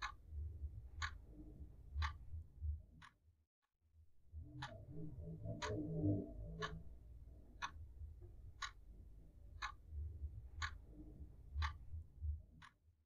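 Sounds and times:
clock ticking: 0.0 - 0.3, 0.9 - 1.2, 2.0 - 2.3, 4.5 - 11.0, 11.6 - 11.9, 12.6 - 12.8
faint low rumble: 0.0 - 3.1, 4.0 - 12.7.

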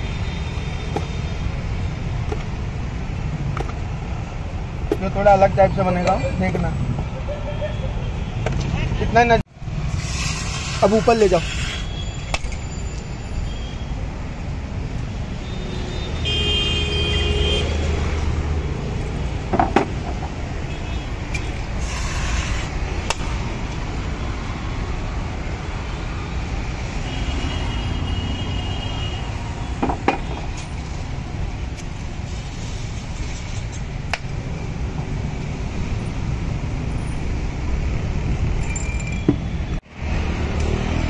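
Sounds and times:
road traffic rumble: 0.0 - 41.0
vehicle horns tooting: 7.1 - 9.2, 15.5 - 17.8.

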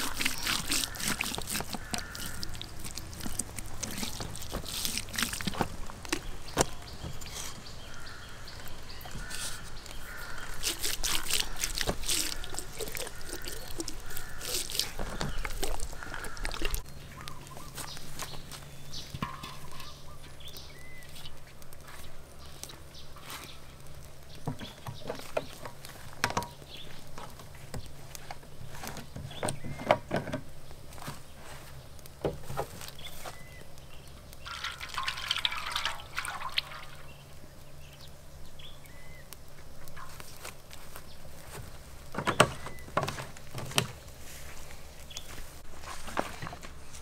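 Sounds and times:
water pouring into a wok: 34.5 - 37.2.

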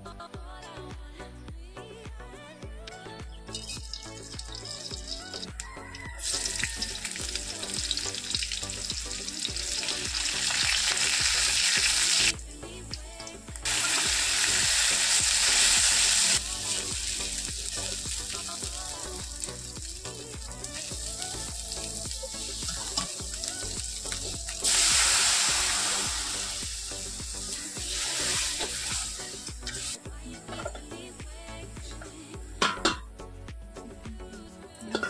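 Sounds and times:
soft background music: 0.0 - 35.0
onion sizzling in hot oil: 3.5 - 30.0.

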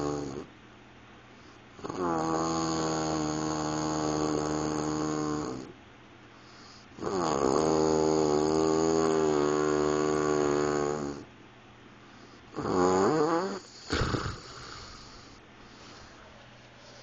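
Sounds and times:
man snoring: 0.0 - 0.5, 1.8 - 5.7, 6.6 - 11.3, 12.5 - 15.4.

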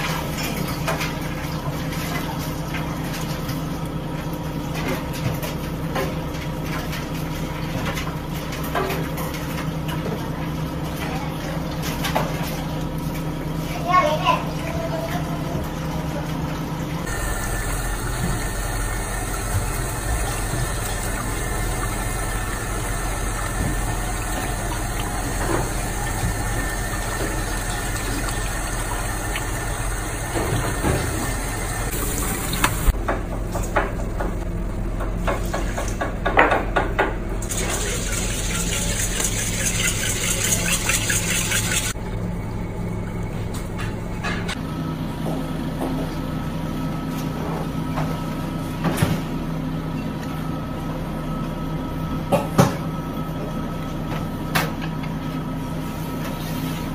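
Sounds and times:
tap water running and splashing: 0.0 - 34.4, 35.0 - 42.0
mechanical hum: 0.0 - 56.9.

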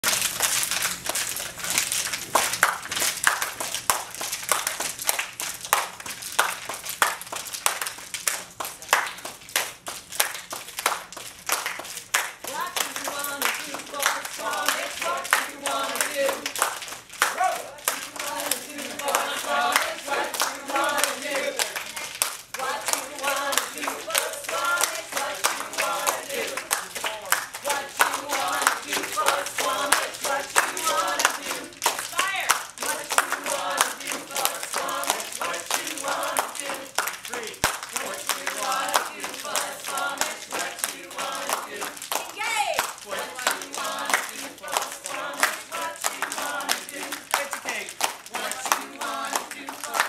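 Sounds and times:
people clapping in rhythm: 0.0 - 50.0
people singing short phrases: 12.5 - 16.6, 17.3 - 50.0.

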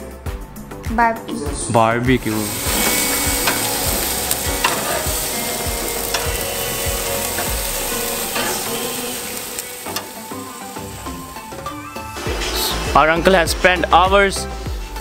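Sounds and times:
chicken sizzling on a grill: 2.2 - 13.1.

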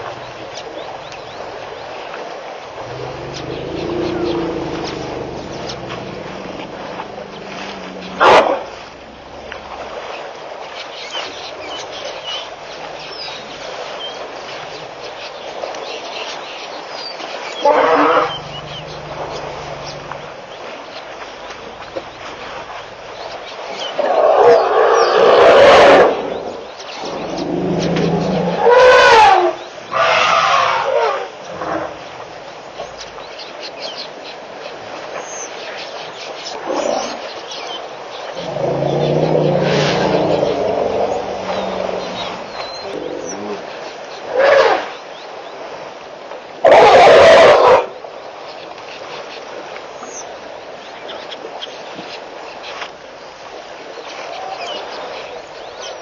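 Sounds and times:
outdoor ambience: 0.0 - 10.9, 17.3 - 33.5, 38.0 - 43.8
elephant trumpeting: 2.8 - 8.8, 17.6 - 20.4, 27.0 - 31.2, 38.4 - 43.6, 46.7 - 47.8
loud animal call: 2.8 - 8.8, 17.6 - 20.3, 27.0 - 31.3, 38.4 - 43.6
elephant roar: 2.8 - 9.8, 17.6 - 20.4, 24.0 - 31.9, 38.4 - 43.7
elephant low rumble: 2.8 - 10.1, 17.6 - 23.0, 25.0 - 29.6, 38.3 - 43.7.

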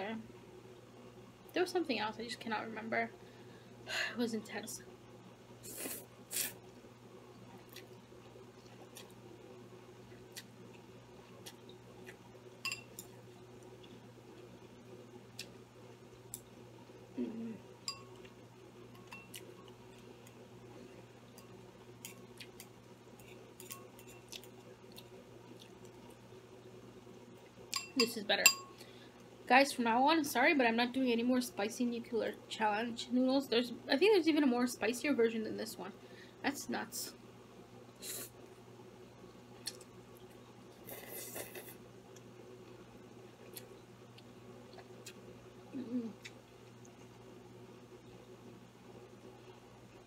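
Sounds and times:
low steady hum: 0.0 - 50.0
short humming voice: 17.1 - 17.7, 45.6 - 46.3
chewing noodles: 22.0 - 26.2
chopsticks tapping in ceramic bowl: 27.8 - 28.7.

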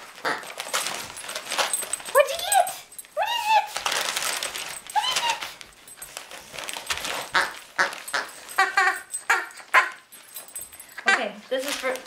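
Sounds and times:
wrapping paper tearing: 0.0 - 10.1, 11.6 - 12.0
dog whining: 4.6 - 6.0.

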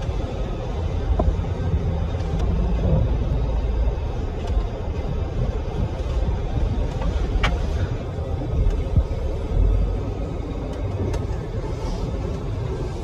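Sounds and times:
tyres rumbling on dirt track: 0.0 - 13.0.

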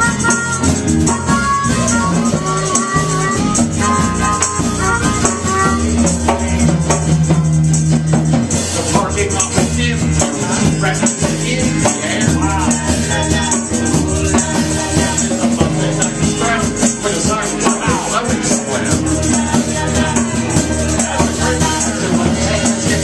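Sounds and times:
live band playing: 0.0 - 23.0.

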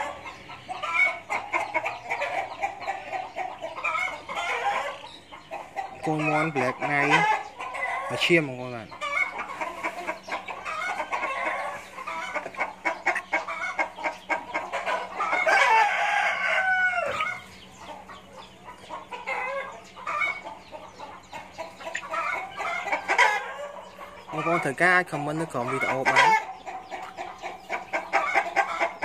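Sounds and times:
young chickens clucking: 0.0 - 29.0.

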